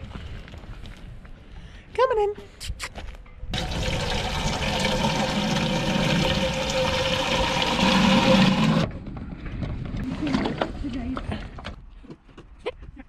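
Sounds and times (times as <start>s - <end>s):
tap water gushing into drum: 3.6s - 8.9s.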